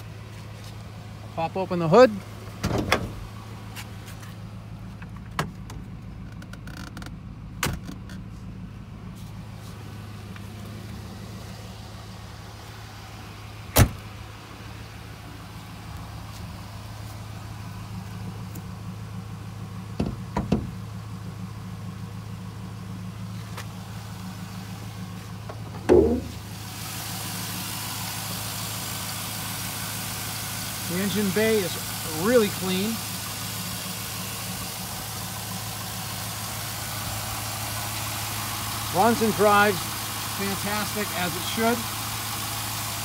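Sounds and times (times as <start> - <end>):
car engine idling: 0.0 - 43.0
knocks and clicks from car body: 5.0 - 8.2, 20.0 - 20.8, 25.5 - 26.4.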